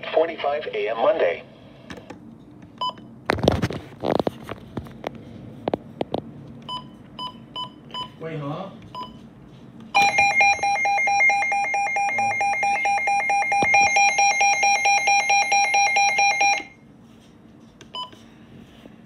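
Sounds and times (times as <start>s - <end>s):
rapidly pulsing alarm beeps: 10.0s - 16.8s.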